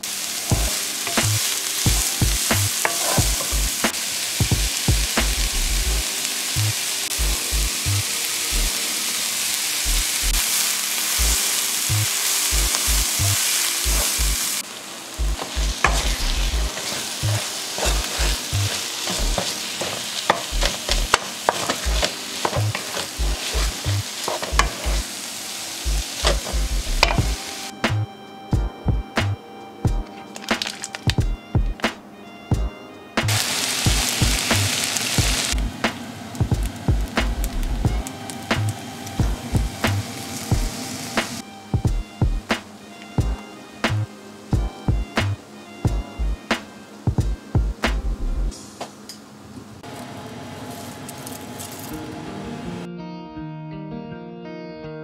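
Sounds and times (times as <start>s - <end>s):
leek sizzling in oil: 0.0s - 27.8s, 30.2s - 31.3s, 33.2s - 46.8s, 49.8s - 52.4s
fried rice frying: 0.0s - 28.0s, 28.6s - 31.9s, 32.5s - 52.9s
wooden spatula scraping a pan: 0.5s - 4.5s, 12.6s - 14.6s, 15.4s - 25.1s, 26.1s - 27.7s.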